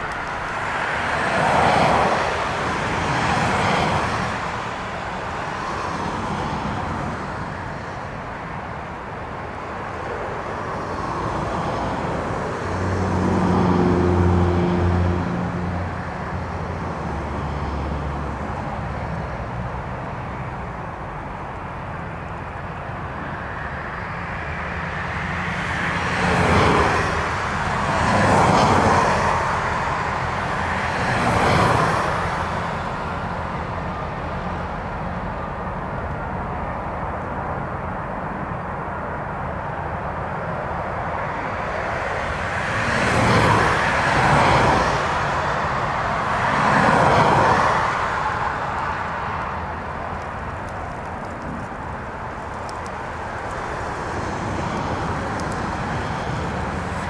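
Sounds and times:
jet engines roaring: 0.0s - 18.8s, 38.0s - 57.0s.

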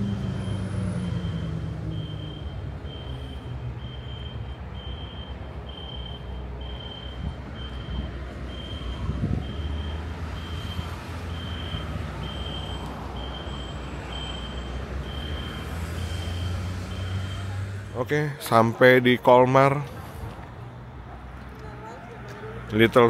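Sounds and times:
high electronic beep: 0.0s - 17.6s
vehicle engine rumbling: 0.0s - 23.0s.

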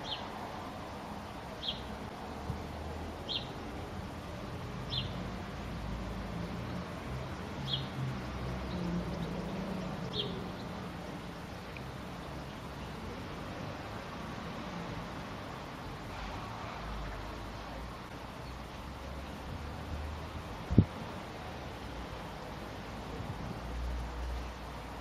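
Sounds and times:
small bird chirping: 0.0s - 0.3s, 1.6s - 1.9s, 3.2s - 3.6s, 4.5s - 5.2s, 7.4s - 8.0s, 8.6s - 10.8s.

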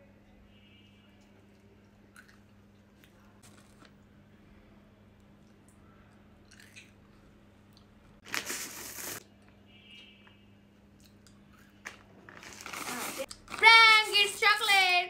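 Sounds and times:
plastic bag of pebbles rustling: 12.2s - 14.4s.

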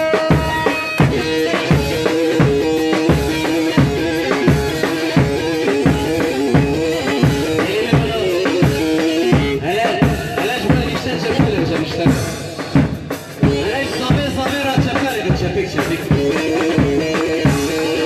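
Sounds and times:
lute playing a melody: 0.0s - 9.7s, 16.1s - 18.0s
steady drum beat: 0.0s - 18.0s.

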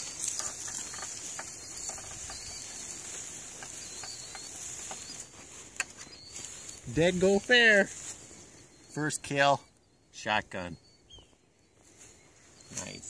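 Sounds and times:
steady high hiss: 0.0s - 10.4s.

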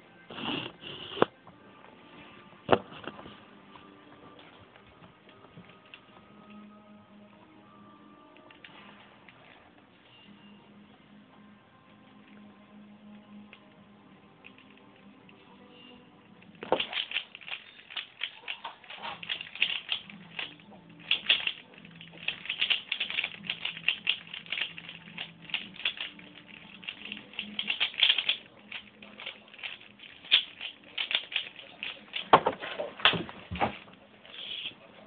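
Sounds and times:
puzzle cube plastic clicks: 16.4s - 32.4s.

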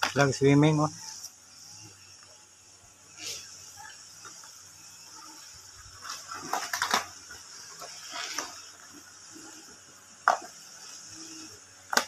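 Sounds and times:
plastic containers clattering: 6.0s - 8.7s.

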